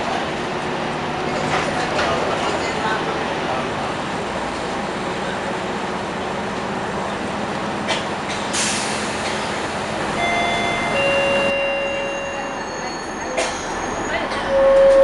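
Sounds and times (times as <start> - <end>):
bus cabin noise: 0.0 - 15.0
brakes squealing: 8.0 - 15.0.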